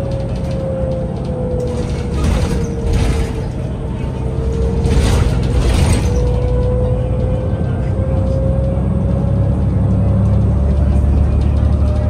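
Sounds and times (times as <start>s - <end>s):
bus drivetrain and road rumble: 0.0s - 12.0s
bus interior rattling: 0.0s - 12.0s.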